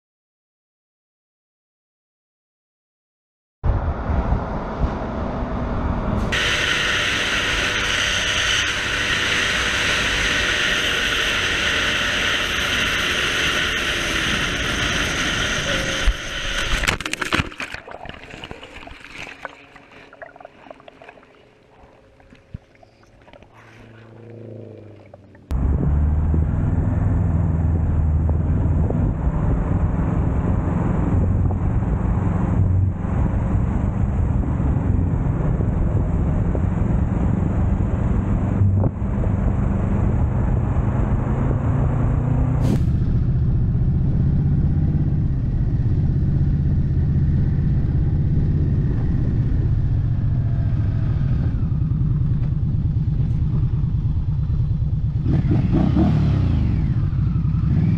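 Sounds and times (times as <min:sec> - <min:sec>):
wind rush on microphone: 0:03.6 - 0:17.0, 0:27.7 - 0:57.9
motorcycle engine and road noise: 0:03.6 - 0:57.9
motorcycle engine at speed: 0:03.7 - 0:17.7, 0:18.3 - 0:57.9.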